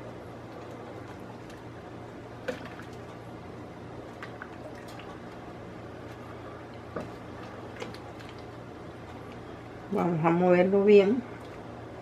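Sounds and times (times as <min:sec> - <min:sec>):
steady low hum: 0:00.0 - 0:12.0
wooden spoon stirring thick mixture: 0:04.0 - 0:09.8.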